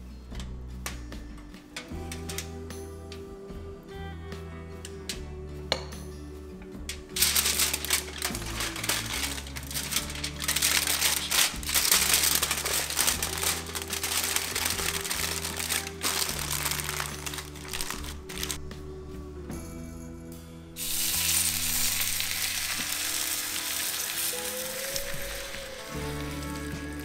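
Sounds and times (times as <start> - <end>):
aluminium foil crinkling: 7.1 - 18.6, 20.8 - 27.0.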